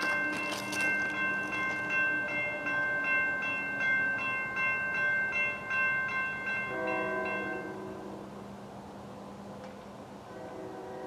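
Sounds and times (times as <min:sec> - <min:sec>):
railroad bell ringing: 0:00.0 - 0:08.4.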